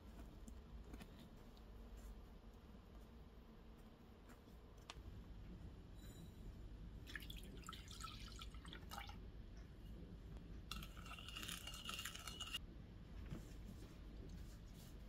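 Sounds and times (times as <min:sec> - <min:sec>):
wooden spoon scraping glass bowl: 0:10.7 - 0:12.6.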